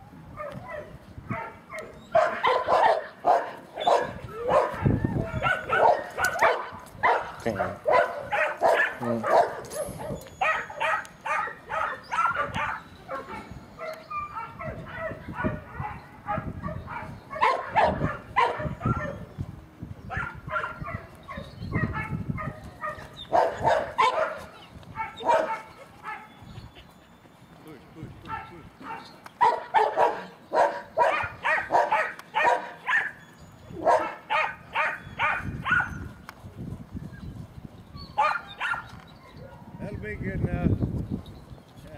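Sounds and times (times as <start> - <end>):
dog barking: 0.4 - 19.3, 20.1 - 26.3, 28.3 - 33.2, 33.8 - 36.1, 38.2 - 39.7.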